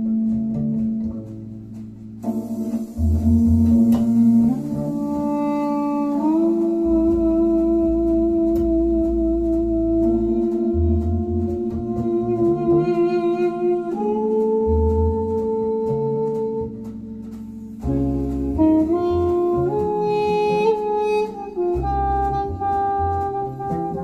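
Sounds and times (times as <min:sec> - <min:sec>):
music with pulsing bass: 0:00.0 - 0:24.0.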